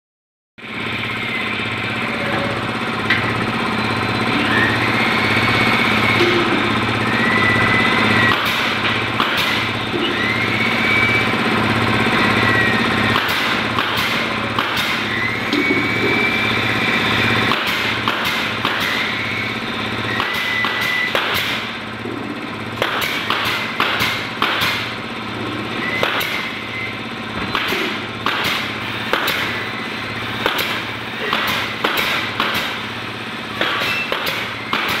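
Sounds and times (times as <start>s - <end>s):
low hum of machinery: 0.6s - 35.0s
nail gun shots into wood: 8.3s - 9.7s, 13.1s - 15.1s, 17.5s - 19.1s, 20.1s - 21.7s, 22.8s - 24.9s, 26.0s - 26.5s, 27.5s - 29.6s, 30.4s - 32.9s, 33.6s - 35.0s.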